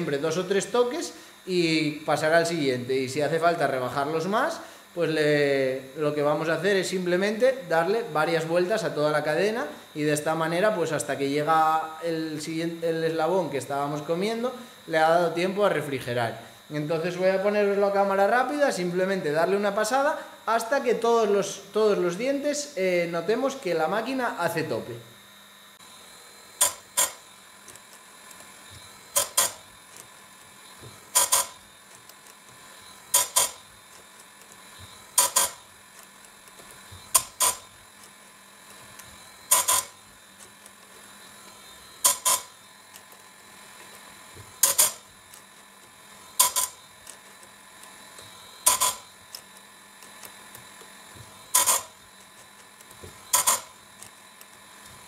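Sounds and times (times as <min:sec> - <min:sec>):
grinder motor hum: 0:00.0 - 0:55.0
grinding disc on chain: 0:26.6 - 0:43.2, 0:43.8 - 0:54.7.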